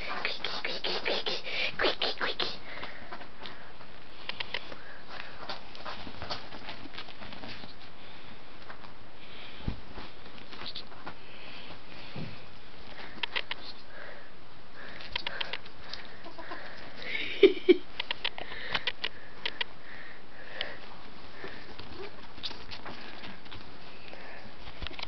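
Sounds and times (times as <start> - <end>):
clicks and rustles on bedding: 3.1 - 7.9
ferrets clucking chatter: 15.2 - 17.0.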